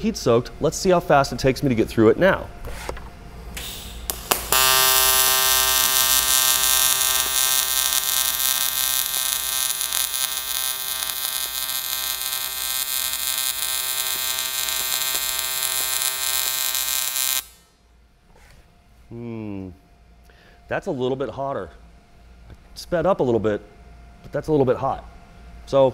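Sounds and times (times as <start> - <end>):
welding arc buzzing: 3.5 - 17.8.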